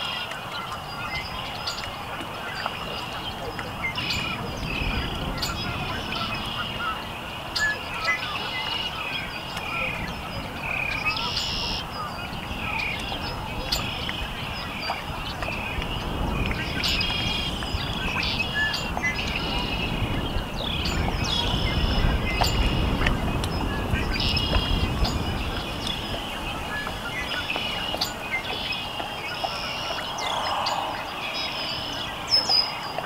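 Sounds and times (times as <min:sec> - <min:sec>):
birdsong: 0:00.0 - 0:33.0
frogs peeping chorus: 0:00.0 - 0:33.0
low rumble: 0:28.8 - 0:32.3.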